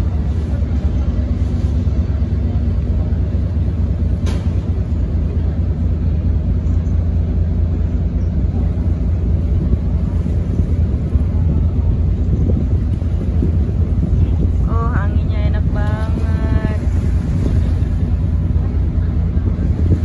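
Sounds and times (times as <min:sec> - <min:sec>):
boat engine rumbling: 0:00.0 - 0:20.0
water noise: 0:00.0 - 0:20.0
wind noise: 0:08.5 - 0:20.0.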